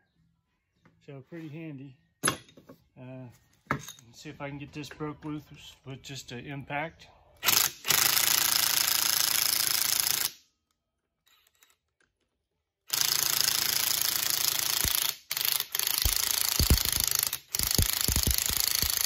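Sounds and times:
impact wrench hammering: 0:13.0 - 0:19.0.

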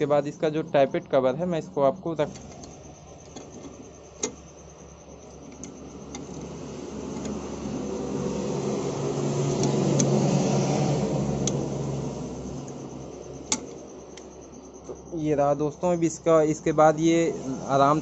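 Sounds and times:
steady machine hum: 0:00.0 - 0:18.0
light metal clicks: 0:13.4 - 0:14.3.

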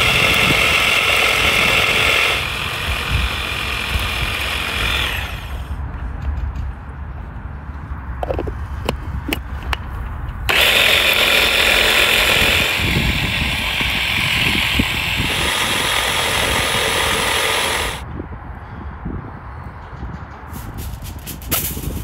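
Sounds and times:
hand blender motor whirring: 0:00.0 - 0:05.7, 0:10.5 - 0:18.0
blender clicks: 0:10.5 - 0:12.8.

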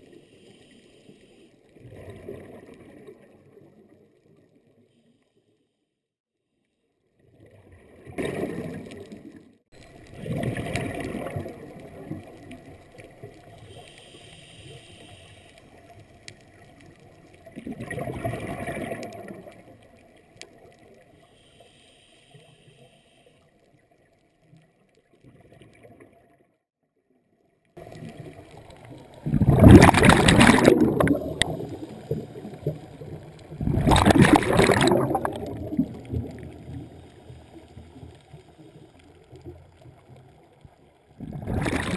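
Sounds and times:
faint hiss: 0:00.0 - 0:01.7, 0:12.4 - 0:16.4, 0:21.1 - 0:23.8
underwater air bubbling: 0:07.4 - 0:21.3, 0:27.8 - 0:41.9.

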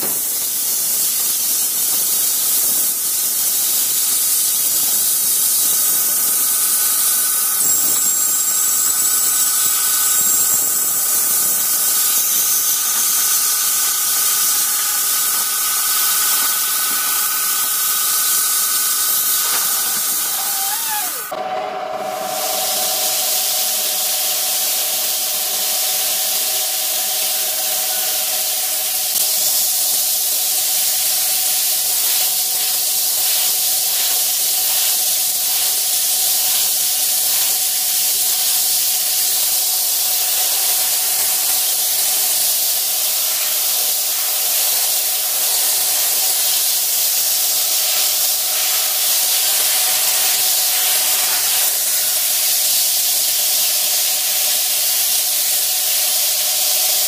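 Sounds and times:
rotary tool motor whine: 0:00.1 - 0:57.0
bit grinding glass: 0:03.8 - 0:21.3.

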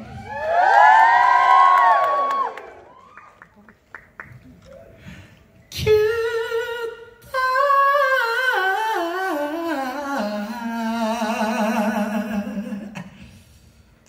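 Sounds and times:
man singing unaccompanied: 0:05.7 - 0:13.0.

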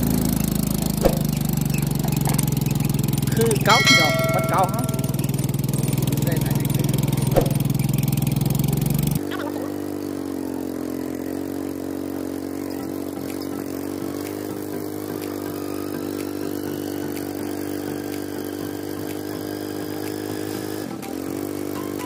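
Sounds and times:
small motorcycle engine running: 0:00.0 - 0:22.0.

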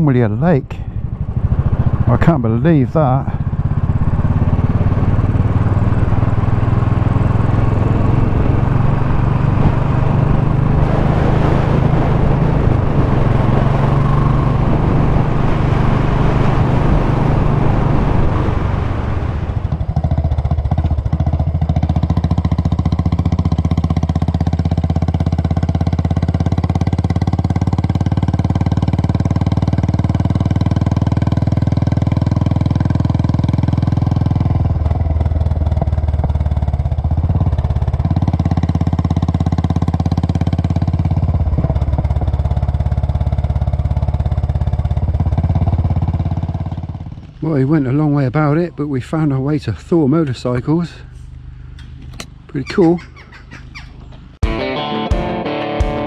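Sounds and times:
motorcycle engine running: 0:00.0 - 0:49.1
wind noise on microphone: 0:08.2 - 0:20.0.

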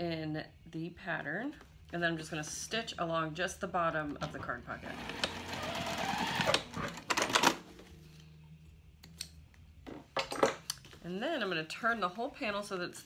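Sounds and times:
sewing machine stitching: 0:04.8 - 0:07.5.

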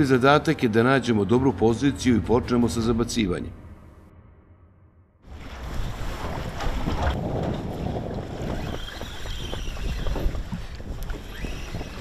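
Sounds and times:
water slapping against boat: 0:05.3 - 0:12.0
wind buffeting microphone: 0:05.3 - 0:12.0.

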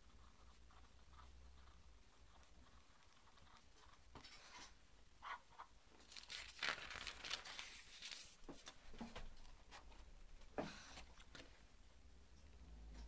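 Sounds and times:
paper page rustling: 0:06.0 - 0:09.9.

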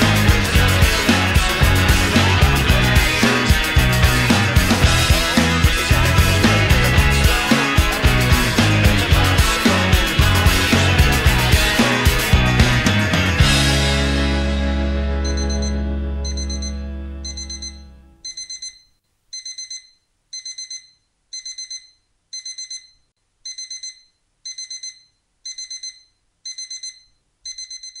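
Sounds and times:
low music chord: 0:13.4 - 0:17.2
alarm clock beeping: 0:15.2 - 0:28.0.

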